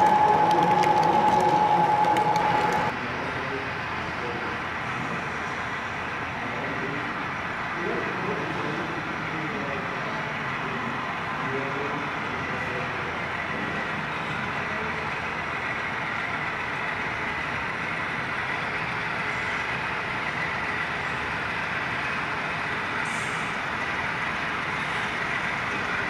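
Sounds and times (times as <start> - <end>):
faint constant whine: 0.0 - 26.0
model locomotive drone: 0.0 - 26.0.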